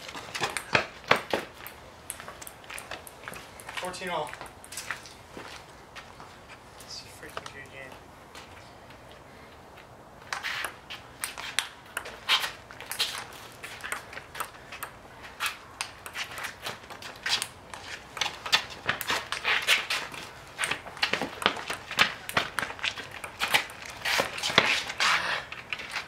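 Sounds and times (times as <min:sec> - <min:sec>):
shoes scuffing on concrete: 0:00.0 - 0:09.2, 0:09.8 - 0:26.0
ping-pong ball clicks: 0:10.6 - 0:12.2, 0:13.7 - 0:15.0, 0:20.6 - 0:23.9.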